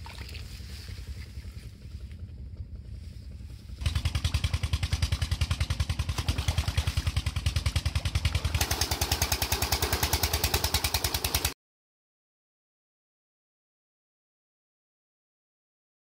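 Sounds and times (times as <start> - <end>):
diesel engine thumping: 0.9 - 11.6
water pouring from pipe: 4.0 - 11.5.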